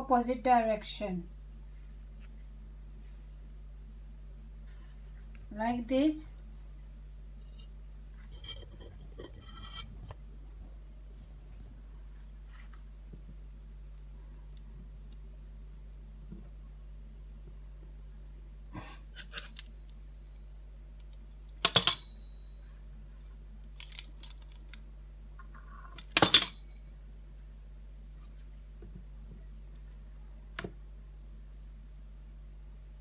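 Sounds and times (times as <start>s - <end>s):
metal cutter clinking on stone: 19.2s - 19.8s, 21.6s - 22.4s, 26.0s - 26.6s.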